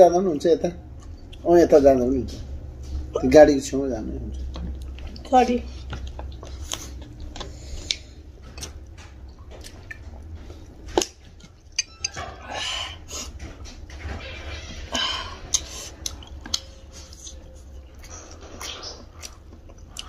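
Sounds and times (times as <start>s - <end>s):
chewing: 0.9s - 1.5s, 4.2s - 12.2s, 15.4s - 20.0s.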